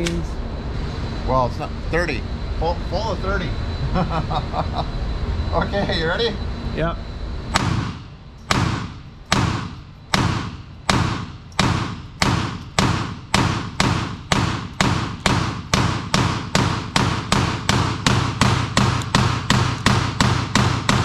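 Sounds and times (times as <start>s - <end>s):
pistol shots echoing indoors: 7.6s - 21.0s.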